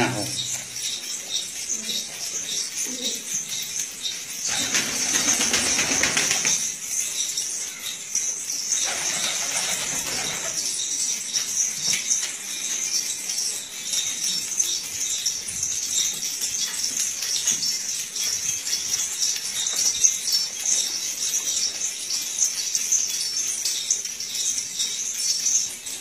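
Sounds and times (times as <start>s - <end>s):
steady high-pitched hiss: 0.0s - 26.0s
pigeons flapping wings: 4.4s - 6.8s, 8.8s - 10.8s.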